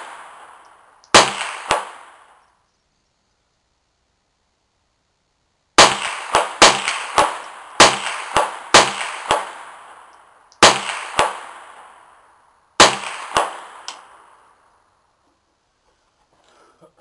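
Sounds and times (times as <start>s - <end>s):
rifle shots: 0.0s - 2.4s, 5.8s - 12.2s, 12.8s - 14.5s
faint echoing crack: 5.9s - 14.8s.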